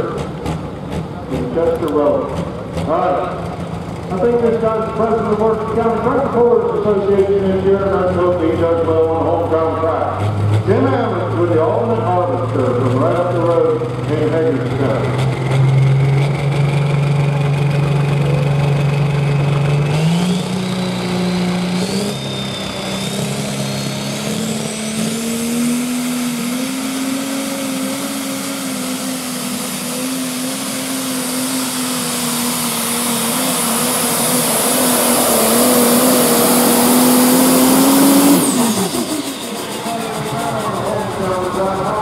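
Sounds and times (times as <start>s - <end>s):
tractor diesel engine at full power: 0.0s - 42.0s
high whine rising in steps: 14.4s - 42.0s.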